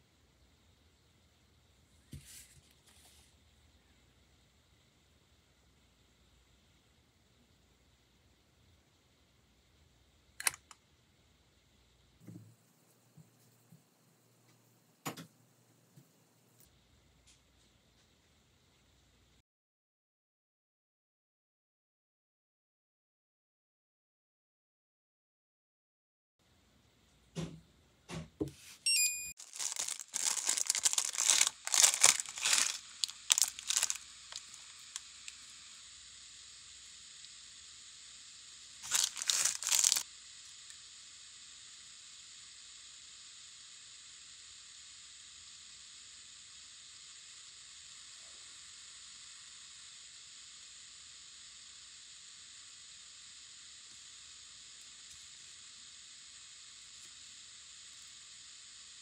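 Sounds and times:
faint hiss: 0:28.5 - 0:59.0
foil seal crinkling and tearing: 0:29.4 - 0:35.4, 0:38.8 - 0:40.0.

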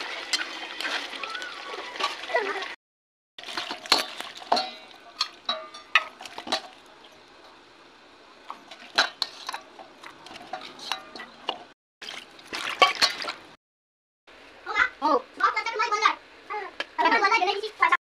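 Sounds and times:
metal bowl and pan clinking: 0:03.4 - 0:07.2, 0:08.7 - 0:11.7, 0:12.6 - 0:13.4.

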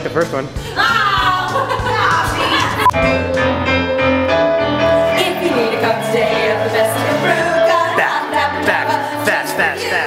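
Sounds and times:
women singing old-style song: 0:05.1 - 0:10.0.

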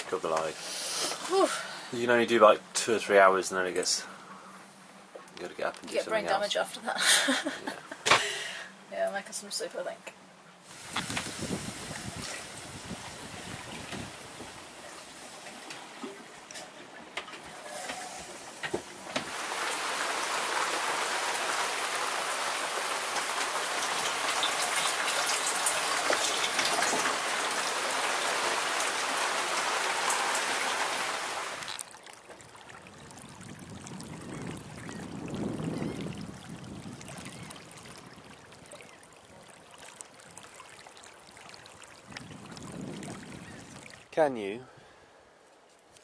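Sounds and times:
heavy rain on roof: 0:17.8 - 0:31.7.

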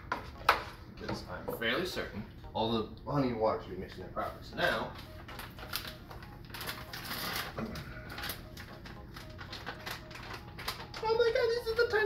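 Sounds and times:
plastic bag crinkling: 0:05.2 - 0:11.4.

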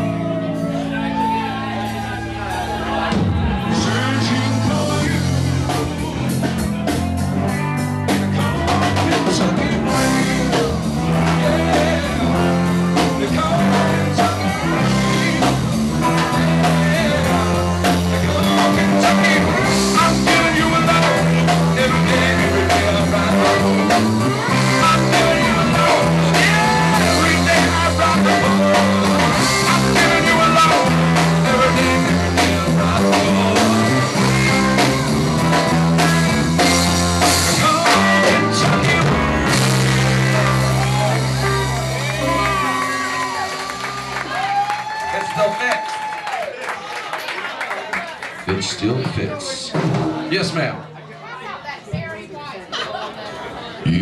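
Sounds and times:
electric bass: 0:00.0 - 0:45.4
drum kit: 0:00.0 - 0:46.4, 0:49.1 - 0:50.7
electric guitar: 0:00.0 - 0:46.5
keyboards: 0:00.0 - 0:54.0
man singing into a microphone: 0:03.0 - 0:06.3, 0:08.2 - 0:34.8, 0:35.7 - 0:39.6.

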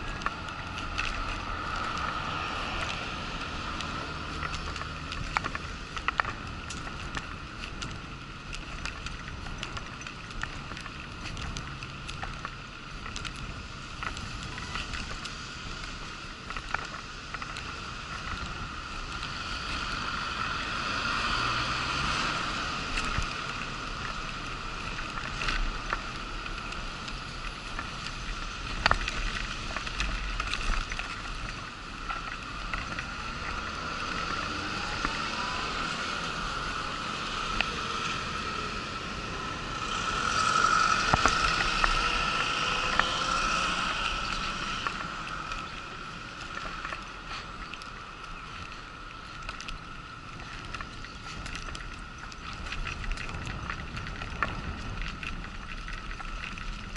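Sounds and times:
wheelchair rolling over paving: 0:00.0 - 0:56.9.

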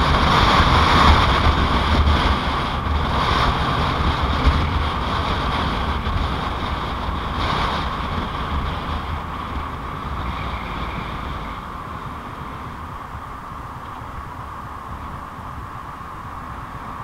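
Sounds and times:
low rumble: 0:00.0 - 0:17.0
motorcycle road noise: 0:00.0 - 0:17.0
wind rush on microphone: 0:00.0 - 0:17.0.

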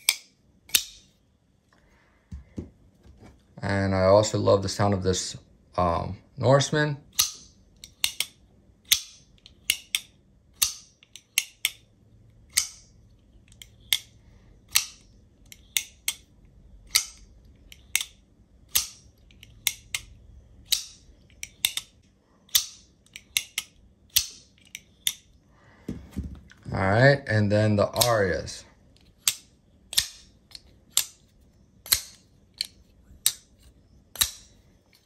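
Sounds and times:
knife blade metallic snap: 0:29.2 - 0:30.3, 0:34.1 - 0:34.5.

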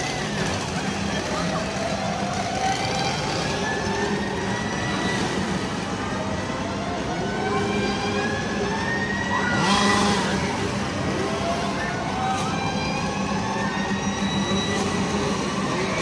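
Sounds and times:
chainsaws revving: 0:09.6 - 0:11.6.

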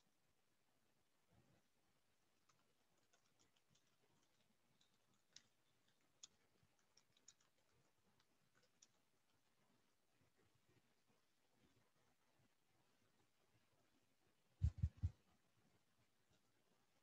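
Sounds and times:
fingers tapping laptop keys: 0:02.4 - 0:09.6.

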